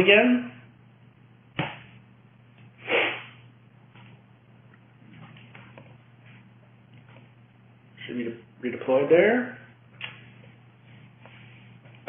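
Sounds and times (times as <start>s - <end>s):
low electrical hum: 0.0s - 12.0s.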